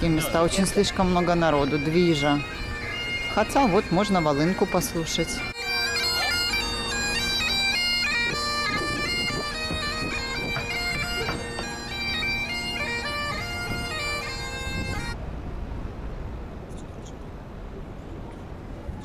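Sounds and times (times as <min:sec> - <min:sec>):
bagpipes playing: 0:00.0 - 0:15.2.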